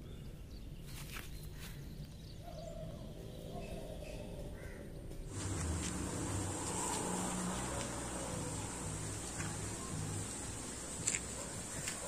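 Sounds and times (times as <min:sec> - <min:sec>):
drawn-out bird call: 0:04.6 - 0:12.0
steady high hiss: 0:05.2 - 0:12.0.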